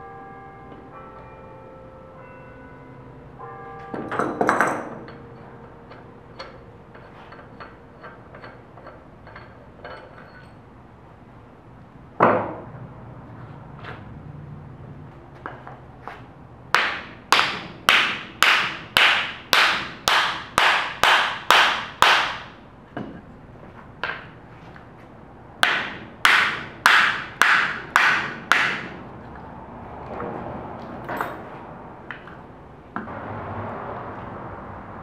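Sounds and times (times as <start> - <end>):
hammer striking metal: 3.8 - 10.5, 16.7 - 23.2, 25.6 - 29.0.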